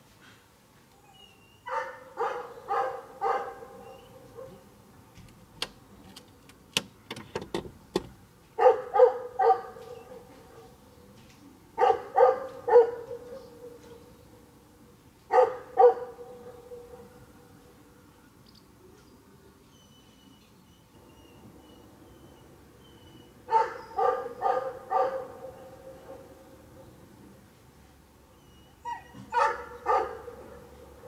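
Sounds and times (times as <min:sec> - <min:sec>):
dog barking: 0:01.7 - 0:04.6, 0:08.6 - 0:10.8, 0:11.8 - 0:14.0, 0:15.3 - 0:17.2, 0:23.5 - 0:26.3, 0:28.9 - 0:31.0.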